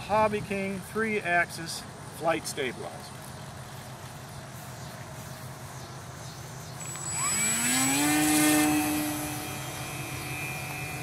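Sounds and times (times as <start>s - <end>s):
electric motor and propeller whine: 3.2s - 11.0s.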